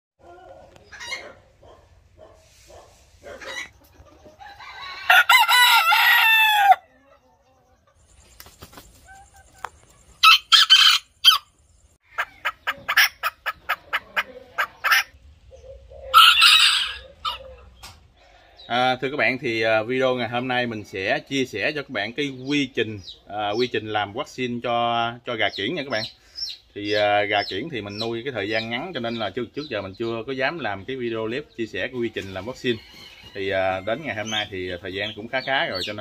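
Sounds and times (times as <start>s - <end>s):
chickens clucking: 0.2s - 36.0s
rooster crowing: 4.4s - 7.0s, 10.2s - 11.5s, 16.1s - 17.6s, 32.7s - 34.1s.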